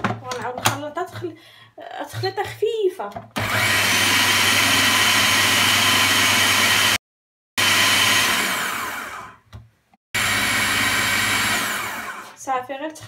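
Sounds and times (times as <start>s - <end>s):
food processor motor running: 3.4s - 7.0s, 7.6s - 9.4s, 10.2s - 12.4s.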